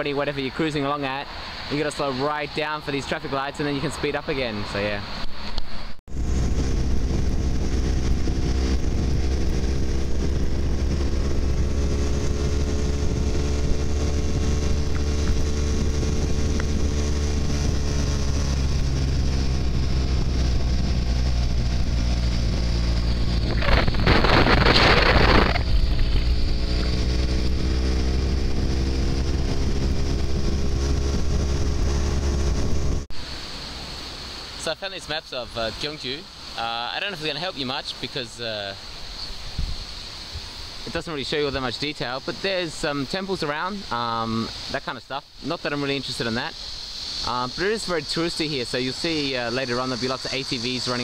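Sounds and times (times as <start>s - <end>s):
wind rush: 0.0s - 34.2s, 39.2s - 42.6s
loud rush of noise: 0.0s - 37.8s
motorcycle engine running: 6.1s - 33.1s.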